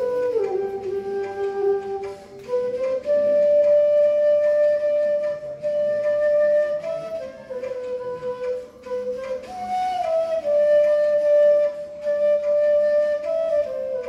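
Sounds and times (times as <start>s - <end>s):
bamboo flute melody: 0.0s - 14.0s.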